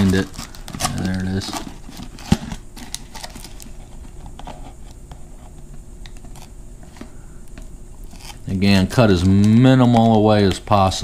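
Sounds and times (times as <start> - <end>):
foil crinkling: 0.0 - 4.1.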